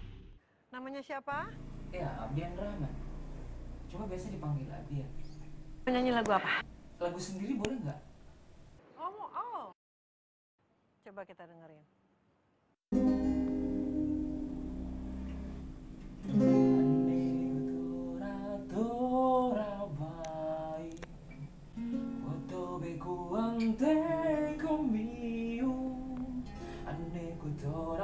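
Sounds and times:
acoustic guitar: 12.9s - 28.0s
man singing: 16.6s - 21.0s, 22.2s - 28.0s.

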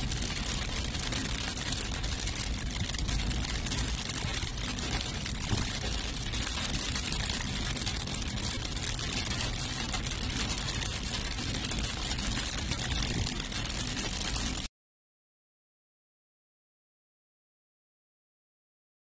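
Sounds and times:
car tyres on wet road: 0.0s - 14.7s
heavy rain on car: 0.0s - 14.7s.

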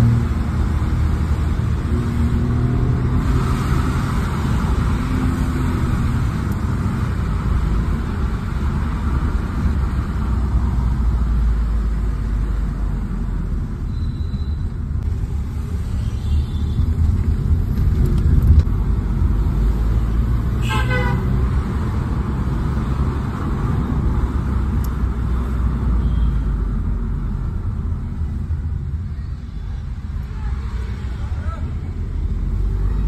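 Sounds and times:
road and engine rumble inside car: 0.0s - 33.0s
car horn honk: 20.6s - 21.3s.

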